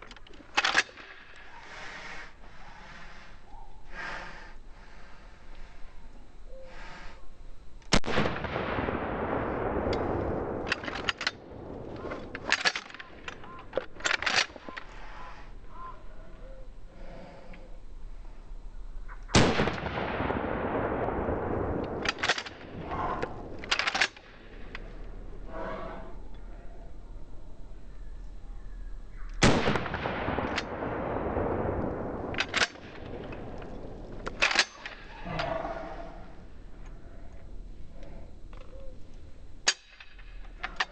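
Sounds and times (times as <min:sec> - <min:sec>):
shotgun shots: 0:07.9 - 0:14.8, 0:19.3 - 0:24.6, 0:29.4 - 0:35.1.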